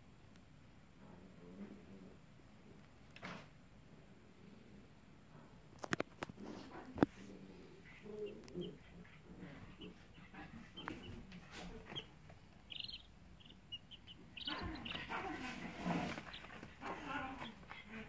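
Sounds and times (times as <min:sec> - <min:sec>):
baby chicks peeping: 0:06.4 - 0:18.0.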